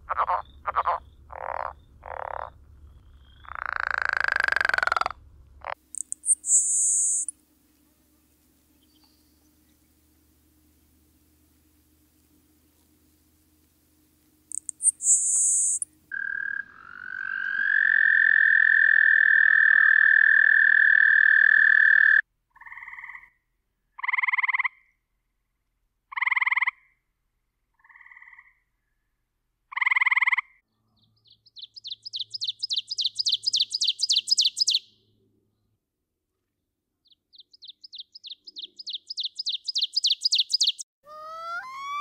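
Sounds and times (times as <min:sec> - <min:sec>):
ovenbird song: 0:00.0 - 0:05.1, 0:05.9 - 0:10.3, 0:14.5 - 0:16.0, 0:30.7 - 0:35.8, 0:37.0 - 0:42.0
treefrog pulsing trills: 0:00.0 - 0:07.3, 0:14.5 - 0:23.4, 0:26.1 - 0:26.9, 0:27.8 - 0:28.6, 0:29.7 - 0:30.6, 0:31.6 - 0:34.9, 0:37.9 - 0:42.0
sparrow buzz and trill: 0:00.0 - 0:09.8, 0:14.5 - 0:19.0, 0:31.0 - 0:35.0, 0:37.1 - 0:42.0.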